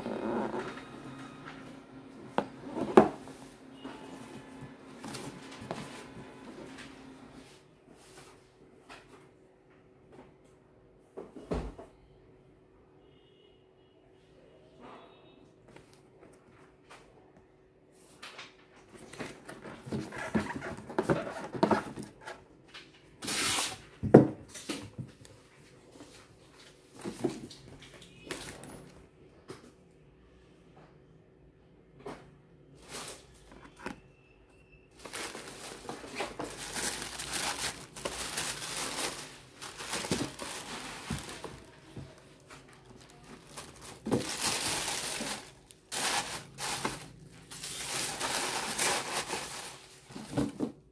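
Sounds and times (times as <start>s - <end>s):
cardboard rustle: 19.0s - 22.4s, 35.0s - 50.7s.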